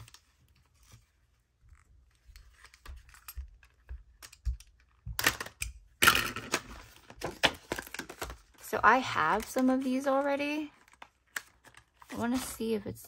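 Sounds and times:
plastic crackling and snapping: 2.3s - 8.6s, 10.7s - 12.1s.

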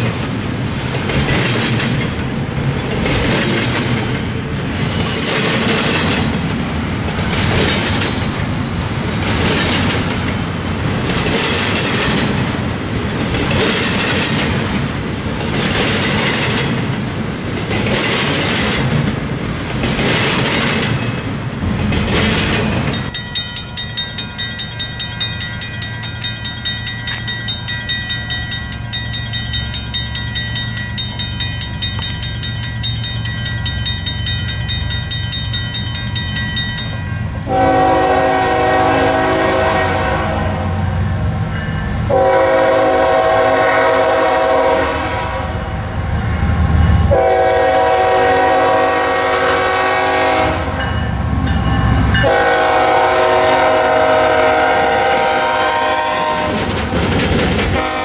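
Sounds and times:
train wheels rumbling and clacking: 0.0s - 58.0s
crossing bell ringing: 20.8s - 38.8s, 40.6s - 43.2s, 46.4s - 48.4s, 50.6s - 53.6s
locomotive horn blasts: 37.5s - 40.8s, 42.1s - 45.7s, 47.1s - 50.9s, 52.2s - 56.7s, 57.7s - 58.0s.

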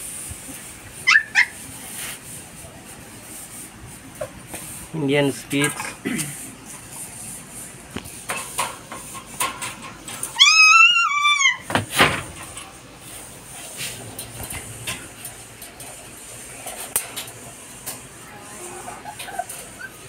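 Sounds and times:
puppy whining: 1.0s - 1.6s, 10.3s - 11.7s, 18.8s - 20.0s
puppy yelp: 1.0s - 1.6s, 10.3s - 11.6s, 19.0s - 20.0s.

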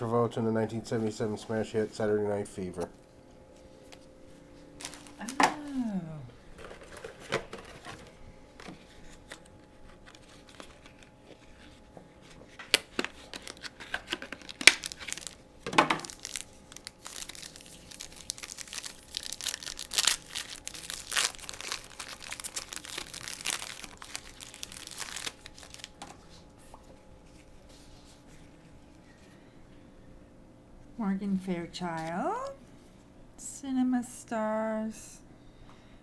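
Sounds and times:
wrapper tearing and crinkling: 4.8s - 6.0s, 9.0s - 11.7s, 12.7s - 26.0s.

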